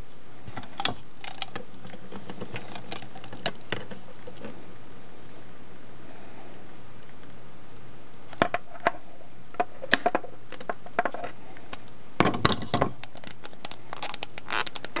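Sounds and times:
plastic hose clicking: 12.8 - 15.0.

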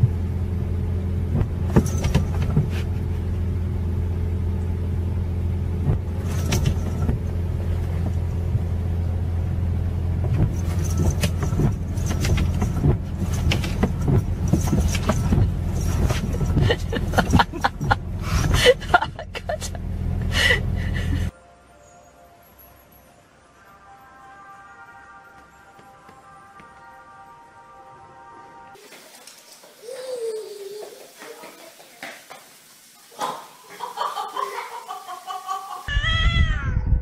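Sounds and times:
car engine idling: 0.0 - 21.3.

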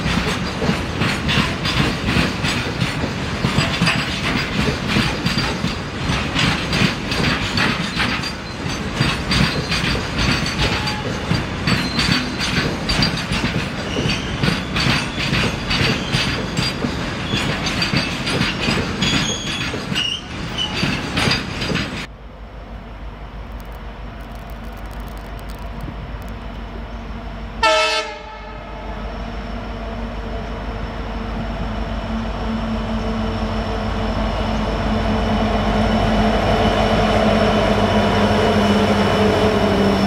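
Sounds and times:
train wheels clattering: 0.0 - 22.1
wheel flanges squealing: 6.8 - 22.1.

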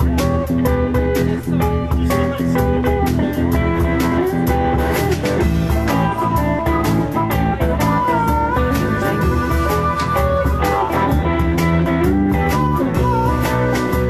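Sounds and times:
drum kit: 0.0 - 14.0
electric guitar: 0.0 - 14.0
harmonica bending notes: 3.5 - 14.0.

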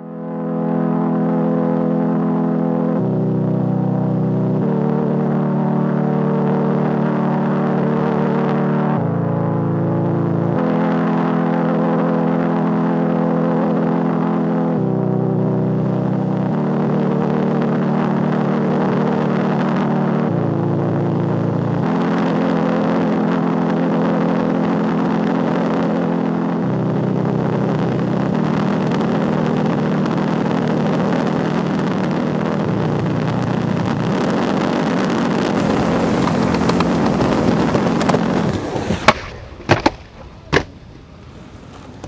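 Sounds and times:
droning notes shifting in steps: 0.0 - 42.0
skateboard clacking on concrete: 35.6 - 42.0.

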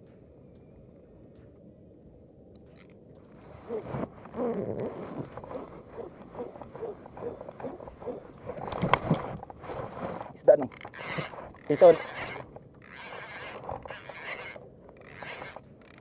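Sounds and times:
fishing reel cranking: 4.8 - 16.0
reel click: 5.3 - 16.0.

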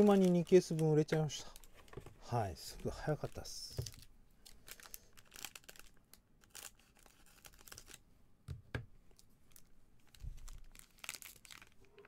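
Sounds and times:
foil pack crinkling: 0.0 - 1.8, 2.8 - 8.0, 9.5 - 12.0
foil pack tearing: 10.5 - 11.9.

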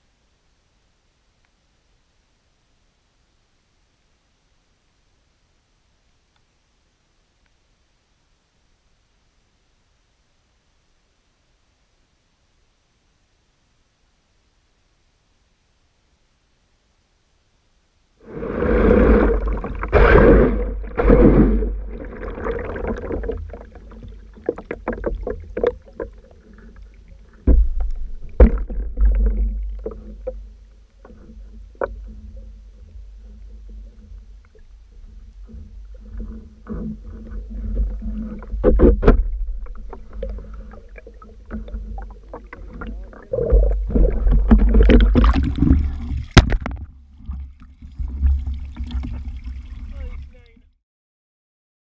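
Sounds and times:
underwater low rumble: 18.2 - 50.6.

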